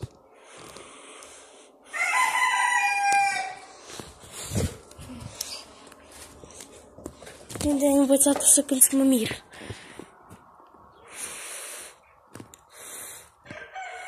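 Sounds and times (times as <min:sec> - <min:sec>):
rooster crowing: 0:01.9 - 0:03.7, 0:13.4 - 0:14.0.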